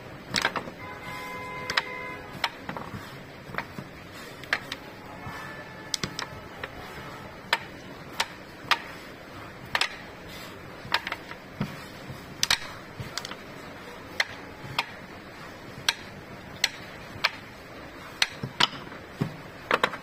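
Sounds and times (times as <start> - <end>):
wooden pucks clacking: 0.2 - 20.0.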